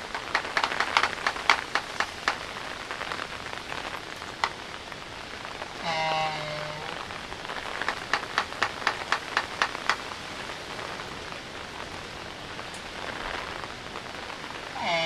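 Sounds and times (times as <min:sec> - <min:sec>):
albatross bill clacks: 0:00.0 - 0:02.6, 0:07.8 - 0:10.1
steady rain falling: 0:00.0 - 0:15.0
albatross moaning call: 0:05.8 - 0:07.0, 0:14.8 - 0:15.0.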